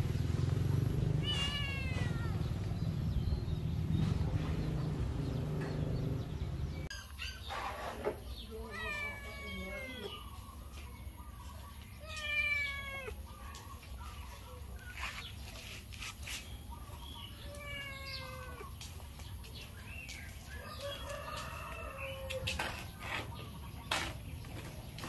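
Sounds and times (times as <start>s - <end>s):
young cat meowing: 1.2s - 2.5s, 8.6s - 10.2s, 12.0s - 13.2s, 17.4s - 18.7s.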